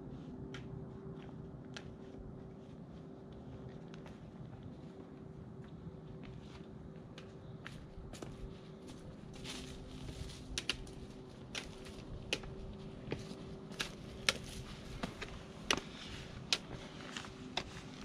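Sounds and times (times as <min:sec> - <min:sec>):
footsteps on rocky trail: 0:00.0 - 0:18.0
trekking pole tips clicking on rock: 0:10.5 - 0:12.5, 0:13.7 - 0:15.9, 0:16.5 - 0:17.3.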